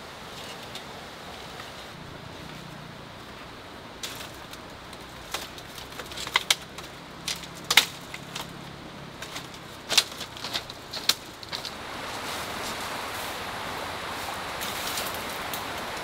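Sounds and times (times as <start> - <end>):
steady outdoor hiss: 0.0 - 16.0
hand tools clicking: 4.0 - 8.6, 9.2 - 11.7
footsteps on bamboo floor: 4.0 - 13.4.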